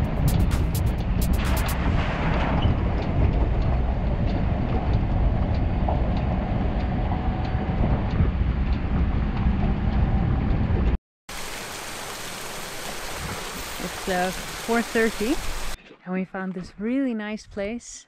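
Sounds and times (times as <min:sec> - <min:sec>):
small waterfall rushing: 0:11.3 - 0:15.8.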